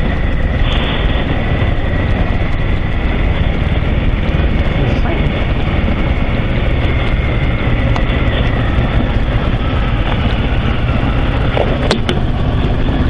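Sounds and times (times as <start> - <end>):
motorcycle engine rumble: 0.0 - 13.0
wind rush on microphone: 0.0 - 13.0.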